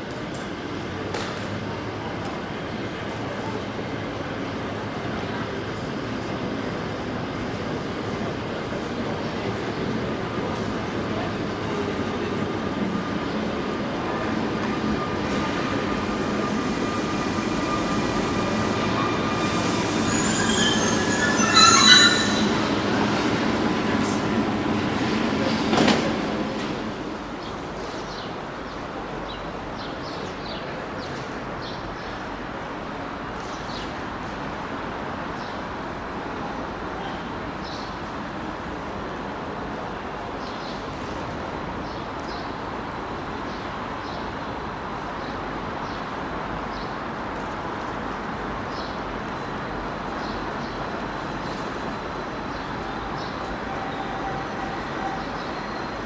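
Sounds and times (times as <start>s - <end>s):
city traffic: 0.0s - 56.0s
train rumble: 0.0s - 56.0s
train wheels squealing: 14.9s - 23.1s, 51.4s - 56.0s
hiss: 16.1s - 21.6s
faint high squeaks: 18.8s - 22.7s.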